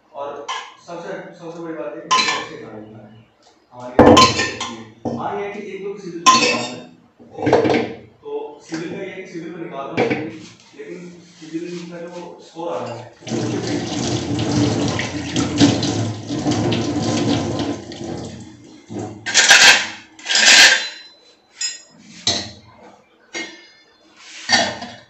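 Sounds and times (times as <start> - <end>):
pots and utensils knocking: 2.1 - 2.5, 4.0 - 5.2, 6.3 - 6.8, 7.4 - 8.0, 13.3 - 22.6, 23.3 - 23.8, 24.5 - 25.0
water splashes: 13.2 - 18.6
tap running into a sink: 13.2 - 19.2.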